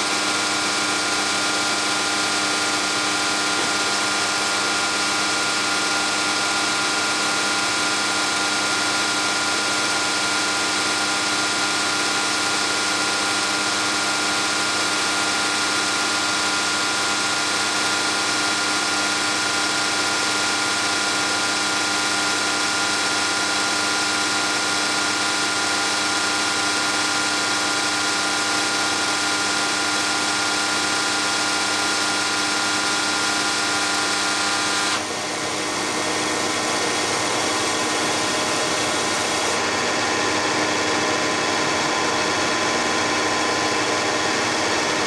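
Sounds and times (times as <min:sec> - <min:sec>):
injection pump test stand humming: 0:00.0 - 0:45.0.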